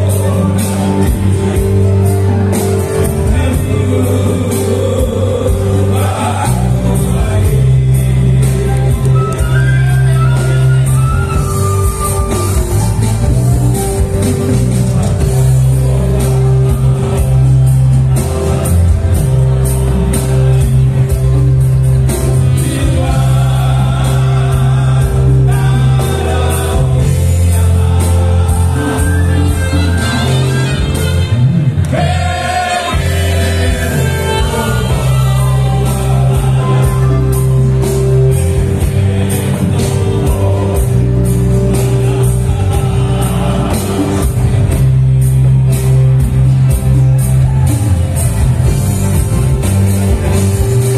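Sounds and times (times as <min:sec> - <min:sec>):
bass line: 0:00.0 - 0:50.9
percussion: 0:00.0 - 0:50.9
male vocal quartet singing: 0:02.8 - 0:12.8, 0:22.3 - 0:31.2, 0:31.9 - 0:45.0.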